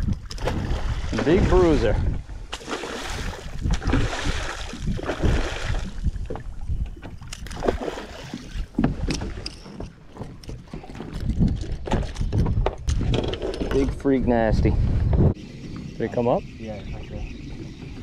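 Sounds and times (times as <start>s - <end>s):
water sloshing around boat: 0.0s - 14.0s
wind rumbling on microphone: 0.0s - 18.0s.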